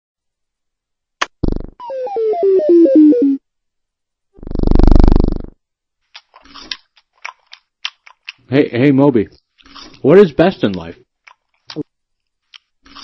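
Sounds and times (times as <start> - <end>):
faint chewing clicks: 6.1 - 8.5.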